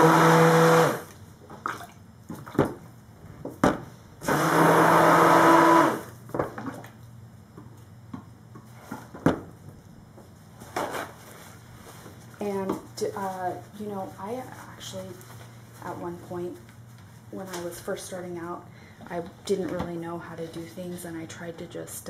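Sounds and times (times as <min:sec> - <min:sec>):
stick blender running: 0:00.0 - 0:01.1, 0:04.2 - 0:06.1.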